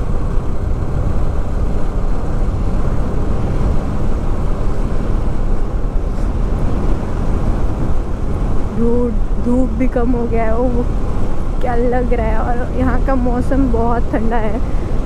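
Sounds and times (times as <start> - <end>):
wind noise on microphone: 0.0 - 15.0.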